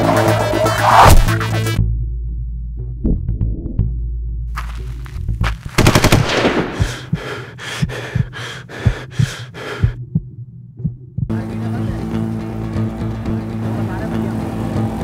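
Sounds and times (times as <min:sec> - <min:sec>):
automatic gunfire: 0:05.8 - 0:07.1
low music drone: 0:11.3 - 0:15.0.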